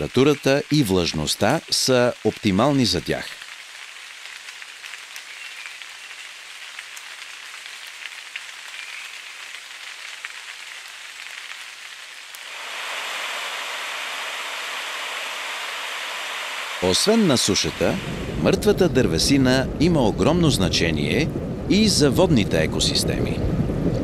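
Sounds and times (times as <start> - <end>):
rain pattering on leaves: 0.0 - 19.6
mountain stream over cascade: 12.4 - 18.4.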